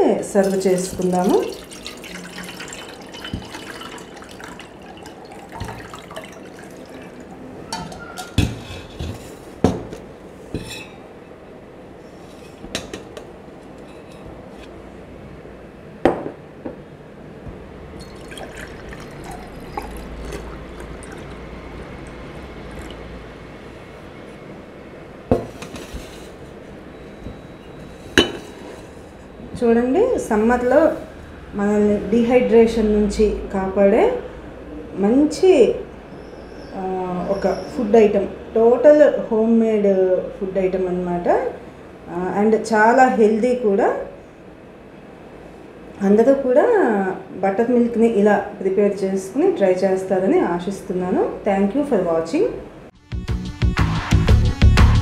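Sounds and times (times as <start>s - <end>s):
liquid pouring trickle: 0.3s - 8.4s, 18.0s - 23.6s
steel and glass utensils clinking: 0.4s - 8.5s.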